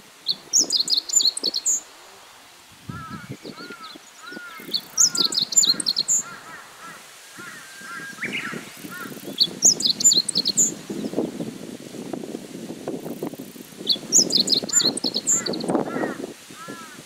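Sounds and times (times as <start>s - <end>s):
bird singing: 0.2s - 1.8s, 2.9s - 11.2s, 13.9s - 15.7s.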